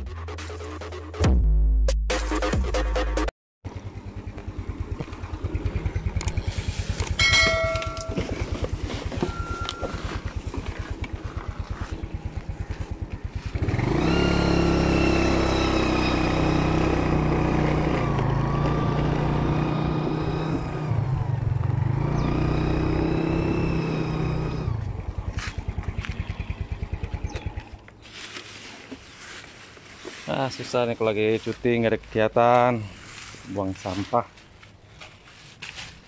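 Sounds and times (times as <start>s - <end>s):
scooter engine idling and revving: 3.7s - 28.3s.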